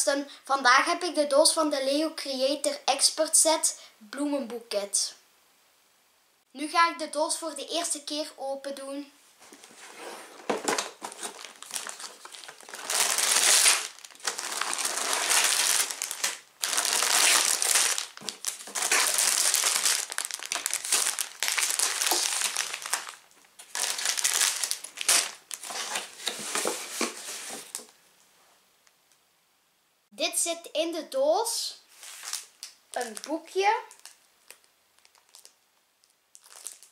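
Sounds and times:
cardboard box being opened: 0:09.6 - 0:13.0
plastic bags crinkling: 0:10.3 - 0:28.0, 0:32.0 - 0:36.9.

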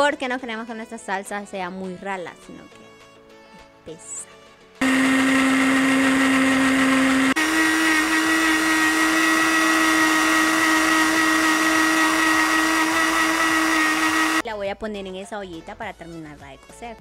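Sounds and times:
blender motor whine: 0:04.8 - 0:14.4.

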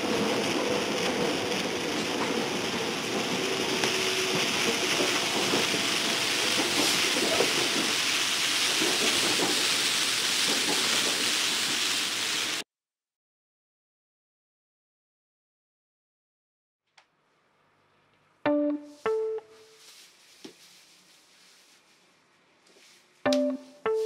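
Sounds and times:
train running inside carriage: 0:00.0 - 0:12.6.

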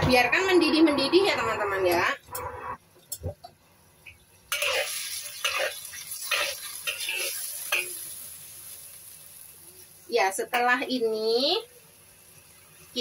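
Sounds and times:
metal spatula scraping a wok: 0:04.5 - 0:08.0.

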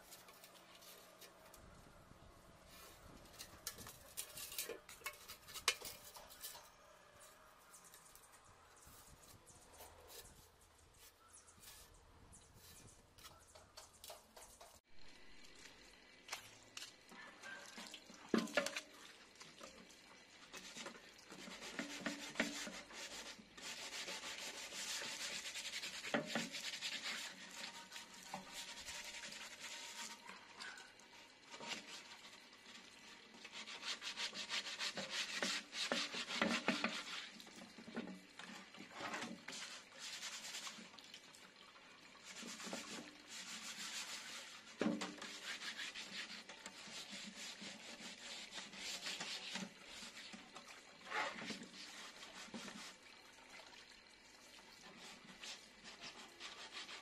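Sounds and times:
sandpaper scratching metal pot: 0:02.7 - 0:14.8, 0:20.6 - 0:30.9, 0:31.5 - 0:32.4, 0:33.4 - 0:37.4, 0:39.0 - 0:40.8, 0:42.3 - 0:50.4, 0:51.0 - 0:52.9, 0:55.0 - 0:57.0.

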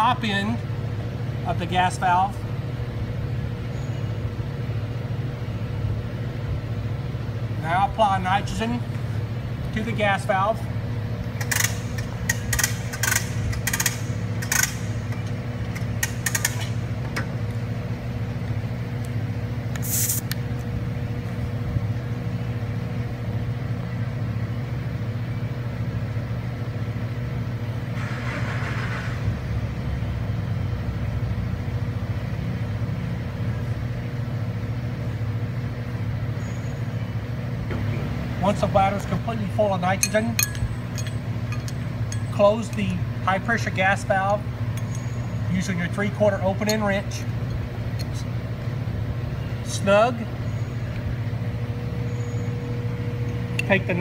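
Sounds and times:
low motor hum: 0:00.0 - 0:54.0
sharp metallic clicks: 0:11.2 - 0:17.3, 0:40.0 - 0:43.0, 0:44.2 - 0:45.1
brief gas hiss: 0:19.8 - 0:20.4.

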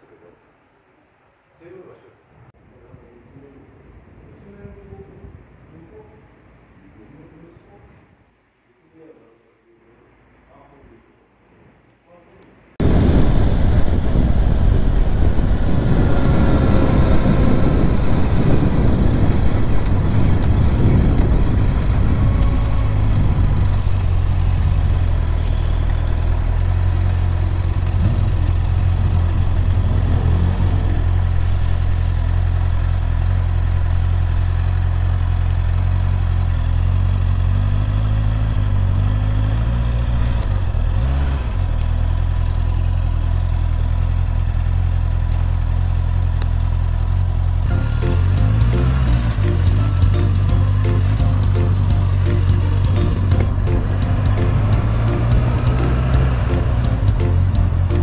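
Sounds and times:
wind and road noise: 0:01.8 - 0:08.6, 0:10.2 - 0:58.0
motorcycle engine: 0:12.8 - 0:58.0.

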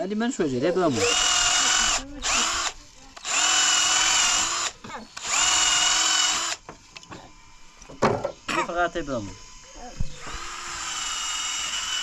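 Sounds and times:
cordless drill boring wood: 0:00.6 - 0:06.8, 0:09.0 - 0:12.0.

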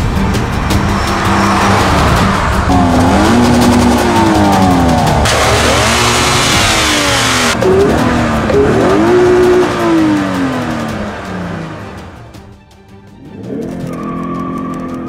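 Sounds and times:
car engine revving: 0:00.0 - 0:12.5.

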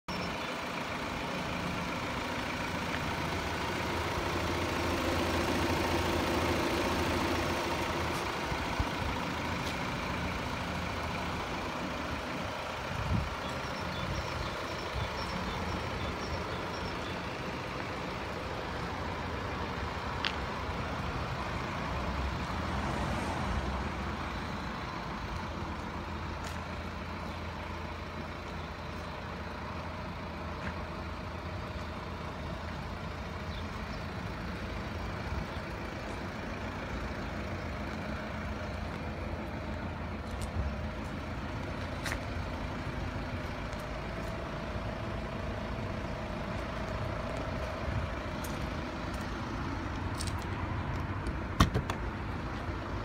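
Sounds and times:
vehicle rumble: 0:00.0 - 0:53.0
thump: 0:51.6 - 0:52.0.

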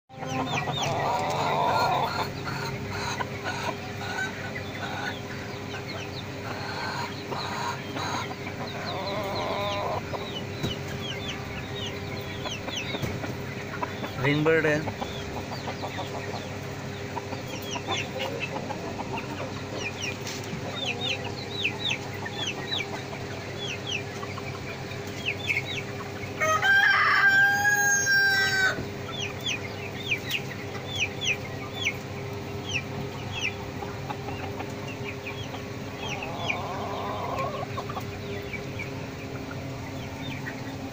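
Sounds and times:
birds chirping: 0:00.1 - 0:40.9
rooster crowing: 0:26.4 - 0:28.8.

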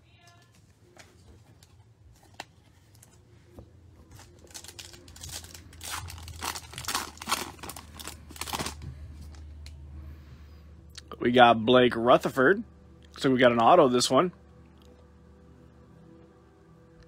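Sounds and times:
foil wrapper tearing and crinkling: 0:04.2 - 0:08.8.

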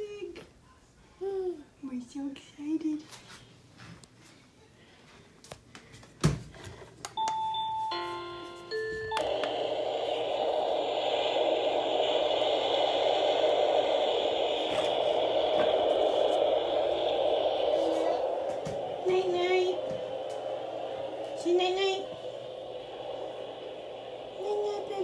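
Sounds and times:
steady soothing noise hiss: 0:00.0 - 0:25.0.

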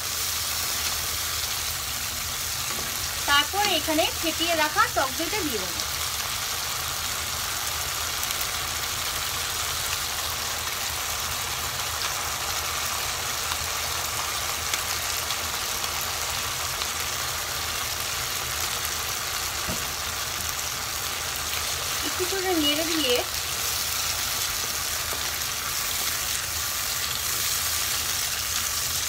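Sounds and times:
paste frying in hot oil: 0:00.0 - 0:29.0.

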